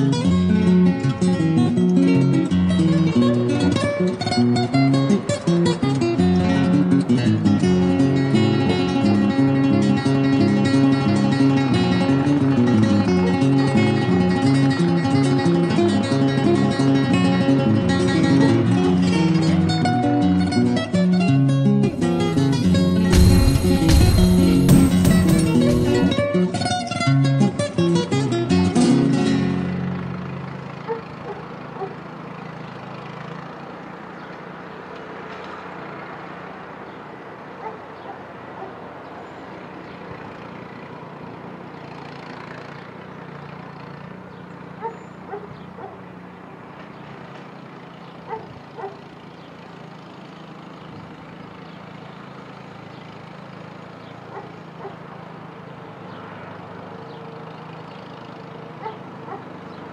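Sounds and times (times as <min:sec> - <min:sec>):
tractor engine running: 0:00.0 - 0:59.9
dog barking: 0:30.8 - 0:32.0, 0:37.6 - 0:38.8, 0:44.8 - 0:46.0, 0:48.3 - 0:49.0, 0:54.3 - 0:55.0, 0:58.8 - 0:59.5.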